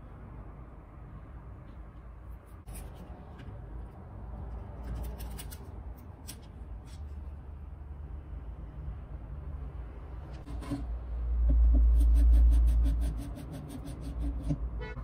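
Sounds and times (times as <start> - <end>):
screwdriver clicking and scraping: 4.8 - 7.2.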